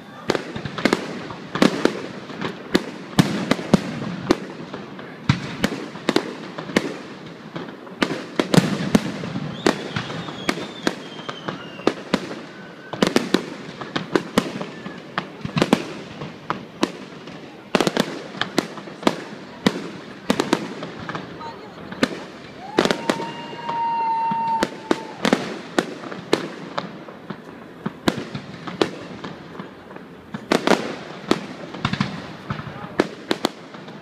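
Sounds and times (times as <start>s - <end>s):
faint falling whistle: 9.5s - 11.9s, 12.5s - 13.0s.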